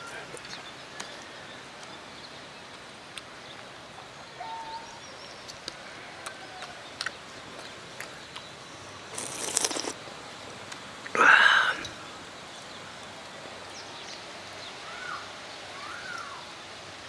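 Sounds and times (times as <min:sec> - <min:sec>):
faint bird chirps: 0:04.2 - 0:07.2, 0:13.7 - 0:16.6.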